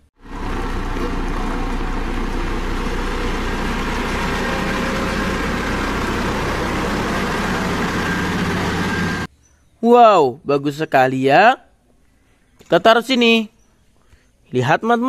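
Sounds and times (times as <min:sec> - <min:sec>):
diesel roller engine drone: 0:00.0 - 0:09.3.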